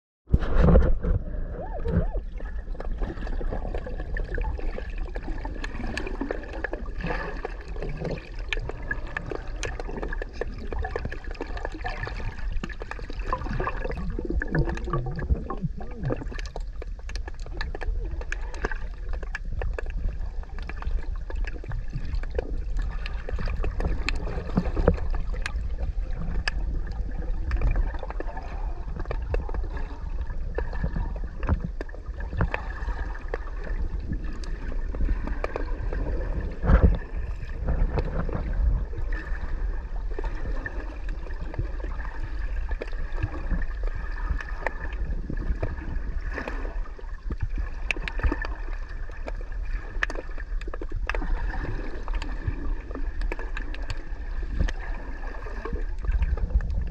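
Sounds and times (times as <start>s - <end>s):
underwater rumble: 0.2s - 56.9s
gurgling bubbles: 0.3s - 56.9s
small crackling clicks: 7.4s - 28.3s, 47.2s - 48.5s, 49.1s - 51.3s, 53.1s - 54.8s.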